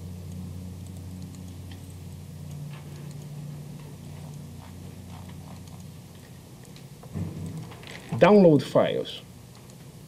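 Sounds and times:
low room hum: 0.0s - 10.0s
faint ticks and clicks: 0.2s - 8.0s.

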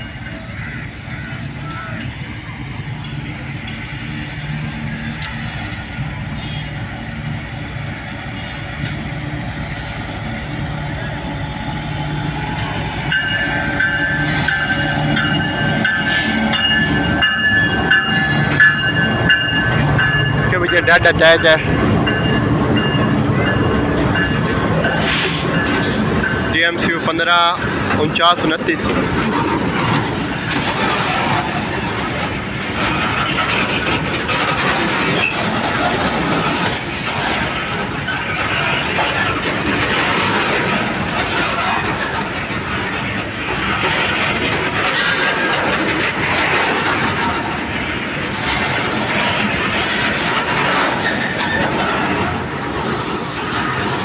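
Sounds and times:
train wheels rumbling on rails: 0.0s - 54.0s
locomotive bell ringing: 10.9s - 28.9s.

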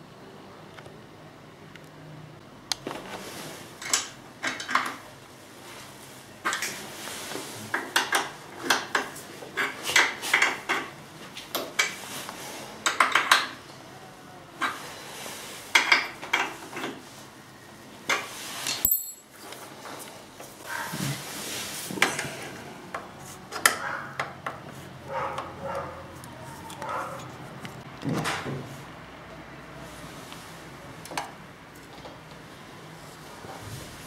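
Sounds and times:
wrench clinking on metal bolts: 18.7s - 19.3s.

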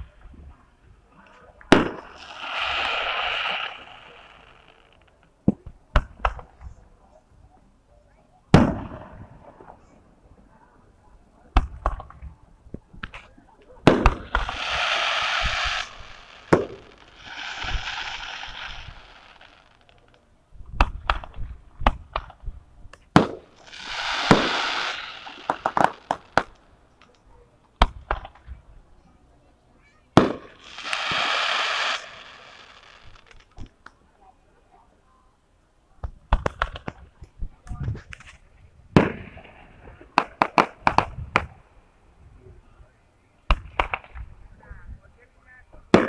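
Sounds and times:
fireworks hiss: 0.0s - 6.8s, 12.9s - 28.7s, 30.0s - 33.9s
fireworks bangs and pops: 1.2s - 6.8s, 8.5s - 9.8s, 11.5s - 28.6s, 30.1s - 34.0s, 36.0s - 41.6s, 43.4s - 44.4s.

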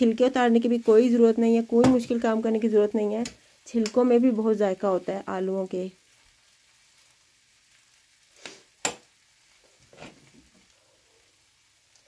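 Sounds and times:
spatula scraping frying pan: 9.9s - 10.2s.

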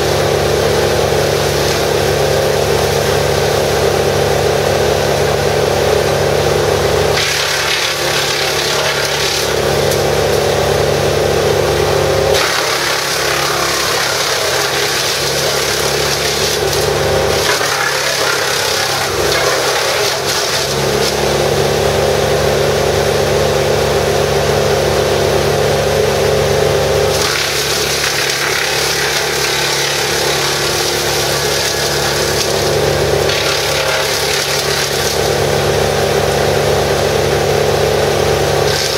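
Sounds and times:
chipper engine running: 0.0s - 38.9s
branches being chipped: 12.4s - 21.3s.

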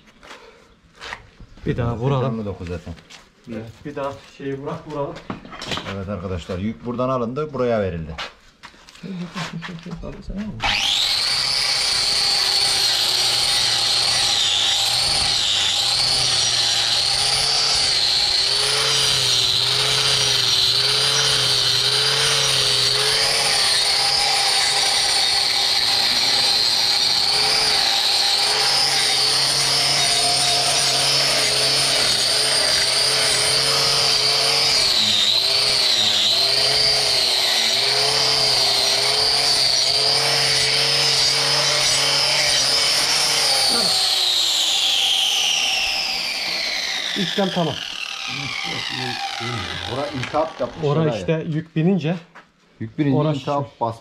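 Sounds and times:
electric power tool whining: 10.6s - 51.3s.

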